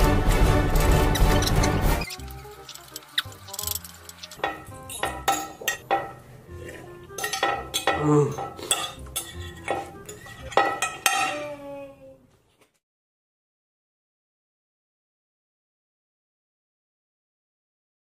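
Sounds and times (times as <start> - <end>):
metal fork clinking on a plate: 1.2 - 6.2, 7.2 - 11.5.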